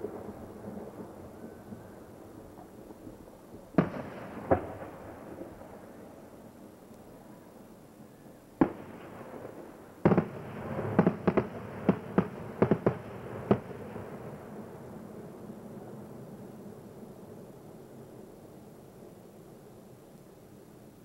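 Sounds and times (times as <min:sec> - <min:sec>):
fireworks bangs and pops: 0:03.8 - 0:05.7, 0:08.6 - 0:13.9.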